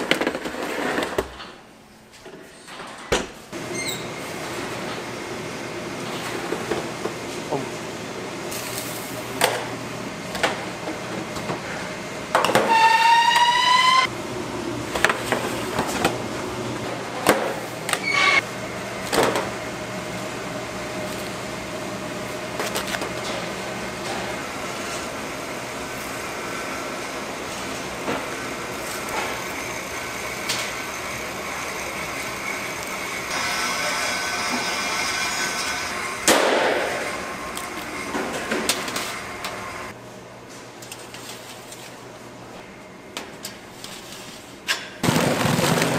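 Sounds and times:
machinery humming: 0:03.5 - 0:40.2
rising squeal: 0:12.6 - 0:14.1.

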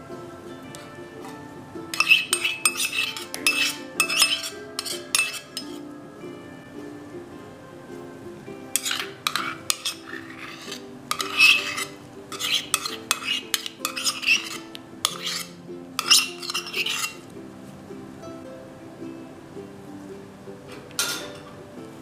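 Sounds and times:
light background music: 0:00.0 - 0:22.0
spoon tapping metal cup: 0:00.7 - 0:05.8, 0:08.8 - 0:17.2, 0:20.9 - 0:21.5
metal spoon scraping a steel cup: 0:01.9 - 0:05.8, 0:08.8 - 0:17.2.

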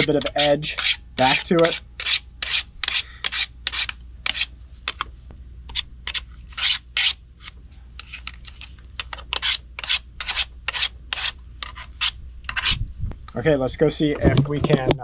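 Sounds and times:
sharpening stone scraping metal blades: 0:00.0 - 0:04.5, 0:05.7 - 0:07.2, 0:09.3 - 0:12.8.

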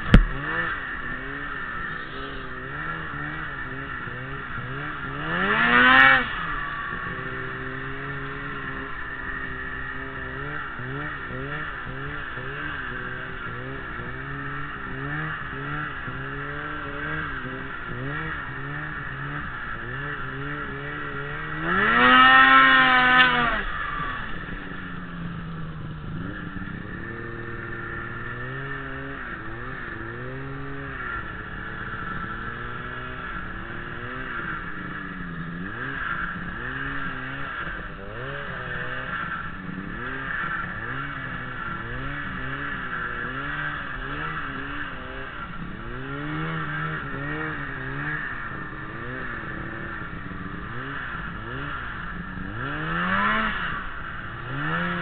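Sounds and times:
snowmobile engine revving: 0:00.0 - 0:55.0.

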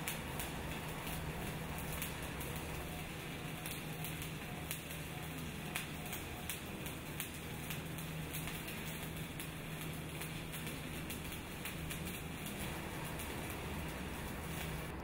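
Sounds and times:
welding arc crackling: 0:00.0 - 0:15.0.

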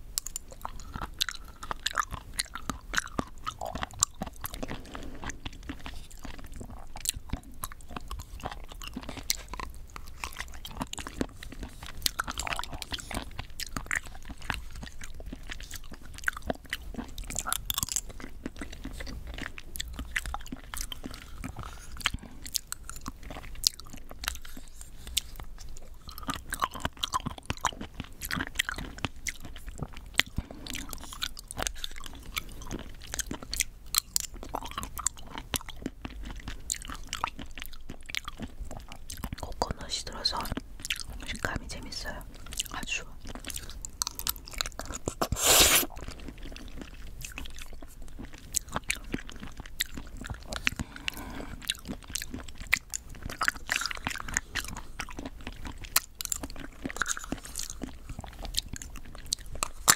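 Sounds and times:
chewing and mouth sounds: 0:00.0 - 0:59.9
plastic spoon scooping cup: 0:45.0 - 0:45.9.

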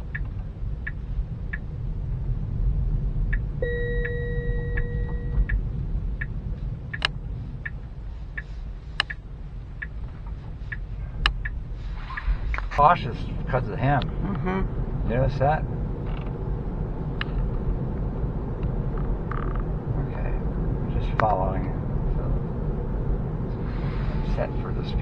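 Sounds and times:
turn signal ticking: 0:00.0 - 0:12.8
road rumble in car cabin: 0:00.0 - 0:25.0
steady electronic tone: 0:03.6 - 0:05.6.

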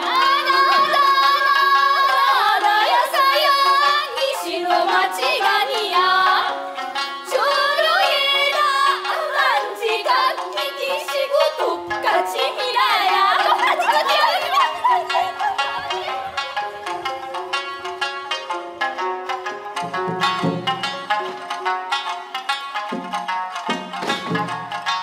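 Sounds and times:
young women singing folk song: 0:00.0 - 0:17.3
instrumental accompaniment: 0:00.0 - 0:25.0.

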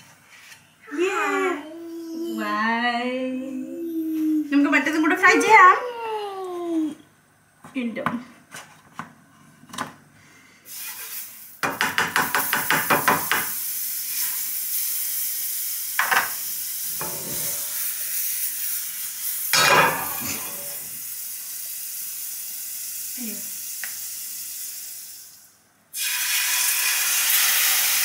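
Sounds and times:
butter sizzling in frying pan: 0:12.2 - 0:19.6, 0:20.2 - 0:28.0
spatula scraping pan: 0:17.0 - 0:17.7.

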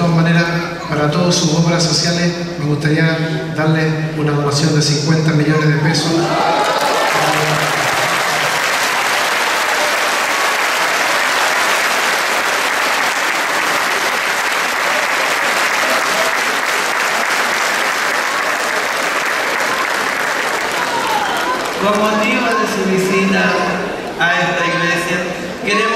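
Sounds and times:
crowd applauding: 0:06.0 - 0:23.1.

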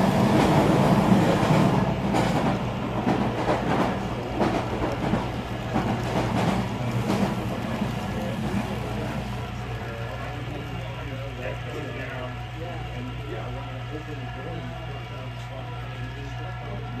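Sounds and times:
wheels clicking over rail joints: 0:00.0 - 0:11.7
model train hum: 0:00.0 - 0:17.0.

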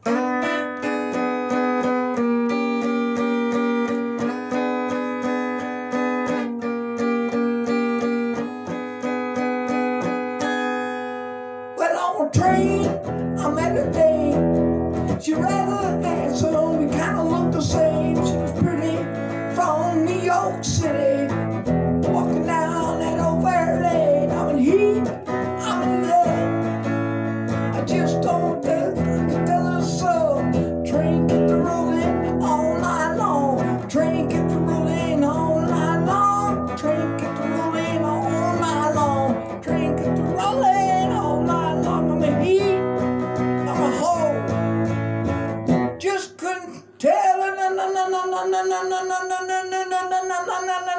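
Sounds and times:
blues-rock electric guitar: 0:00.0 - 0:46.1
bass line: 0:12.4 - 0:46.0.

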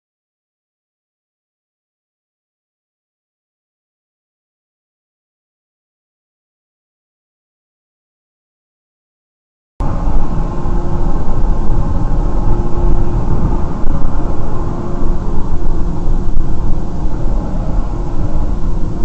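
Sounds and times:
car engine and road rumble: 0:09.8 - 0:19.0
faint drone: 0:09.8 - 0:19.0.

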